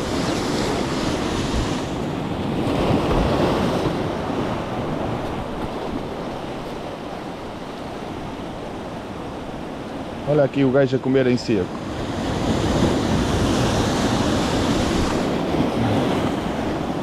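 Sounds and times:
wind on microphone: 0:00.0 - 0:07.0, 0:11.9 - 0:17.0
surf washing over rocks: 0:00.0 - 0:17.0.

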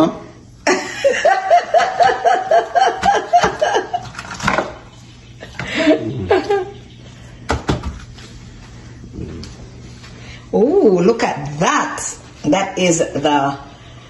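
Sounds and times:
person laughing: 0:00.7 - 0:04.1, 0:05.4 - 0:06.9.

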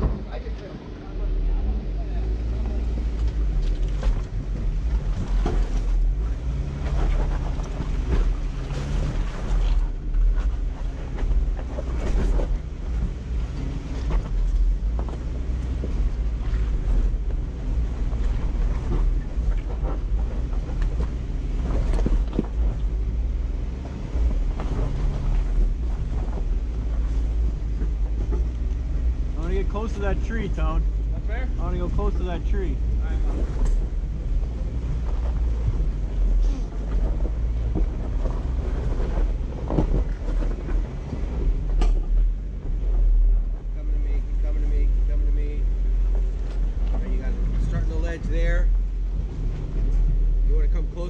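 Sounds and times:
off-road vehicle engine running: 0:00.0 - 0:51.0.

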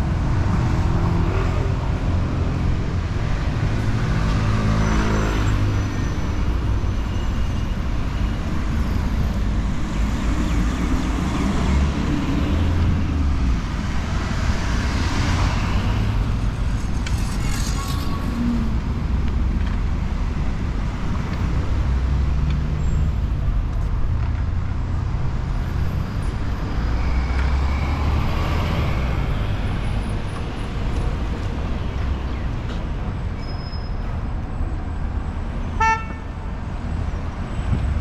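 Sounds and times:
street traffic rumble: 0:00.0 - 0:38.0
vehicle horn toot: 0:35.8 - 0:36.3.

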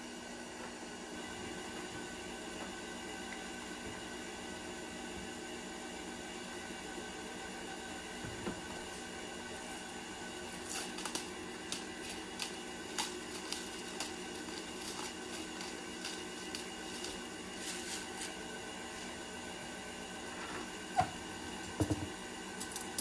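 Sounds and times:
stand mixer running: 0:00.0 - 0:23.0.

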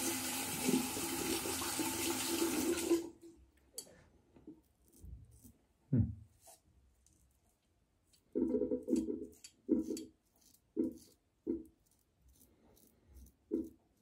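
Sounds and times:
tap water running into sink: 0:00.0 - 0:03.1.

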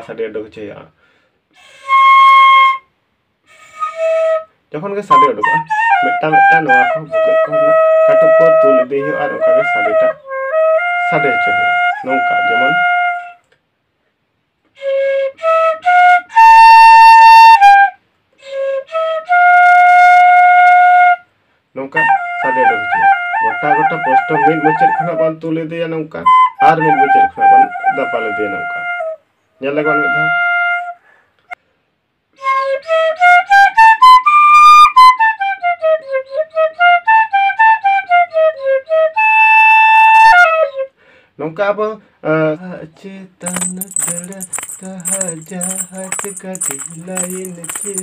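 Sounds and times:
bamboo flute melody: 0:01.6 - 0:02.9, 0:03.5 - 0:13.4, 0:14.7 - 0:21.3, 0:21.9 - 0:25.4, 0:26.2 - 0:31.0, 0:32.3 - 0:40.9
bamboo flute notes: 0:05.1 - 0:13.4.

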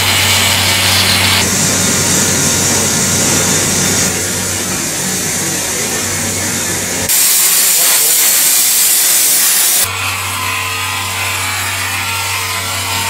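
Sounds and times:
rotary tool whining: 0:00.0 - 0:13.0
loud even hiss: 0:01.2 - 0:09.9.

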